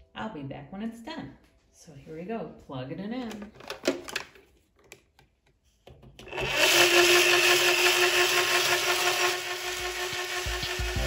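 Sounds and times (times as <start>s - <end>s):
motor humming: 6.3s - 11.0s.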